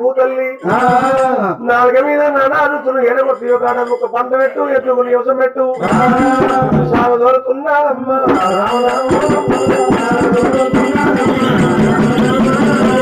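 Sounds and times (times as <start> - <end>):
people singing: 0.6 - 4.8, 5.8 - 13.0
fast drum strokes: 5.8 - 7.2, 8.3 - 13.0.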